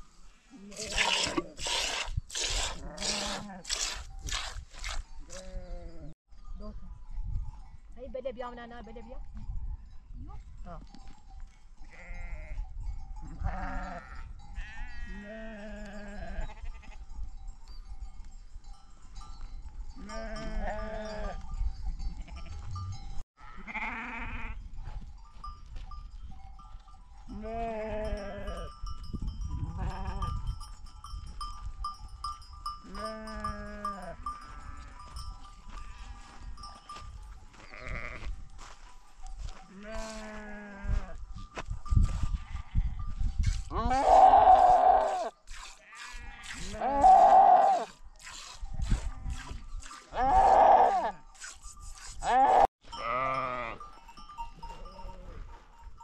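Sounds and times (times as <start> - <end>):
sheep bleating: 13.4 - 17.0, 23.4 - 24.6, 37.5 - 38.3, 39.7 - 41.2, 43.7 - 47.9, 52.2 - 53.8.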